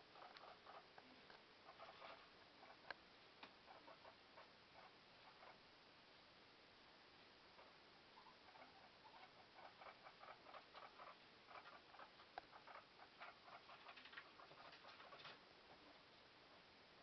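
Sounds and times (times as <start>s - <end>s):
guinea pigs scampering: 0.0s - 5.6s, 7.6s - 16.7s.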